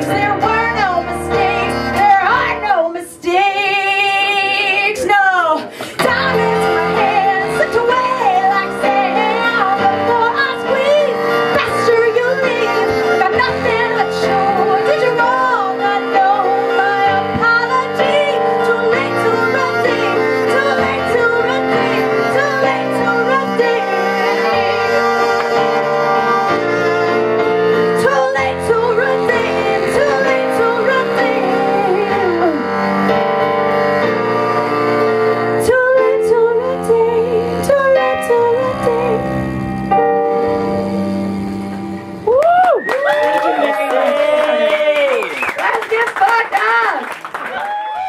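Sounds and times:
woman singing: 0.0s - 25.8s, 27.8s - 32.9s, 35.2s - 39.6s
electronic piano chords: 6.0s - 42.3s.

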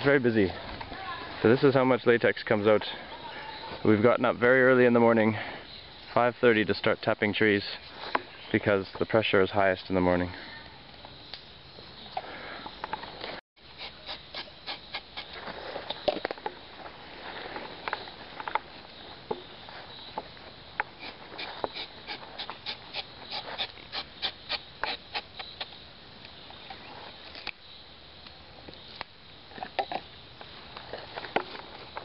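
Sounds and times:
knife scraping tree bark: 13.8s - 15.4s, 21.0s - 25.7s.

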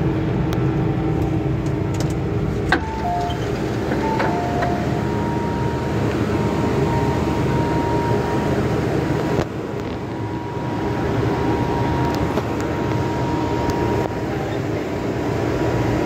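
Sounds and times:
train humming at platform: 0.0s - 16.0s
thin steady tone: 10.0s - 14.5s.

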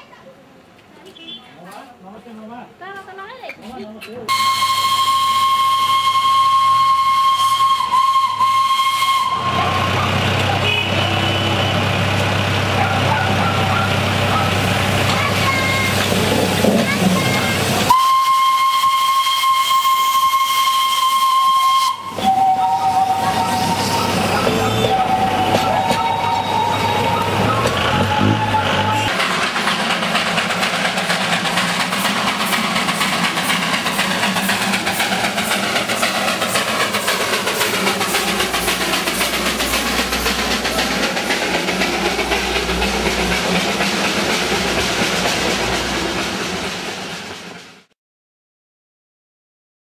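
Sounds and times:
steam whistle blast: 4.3s - 11.8s, 17.9s - 29.1s
steam hissing: 4.3s - 47.9s.

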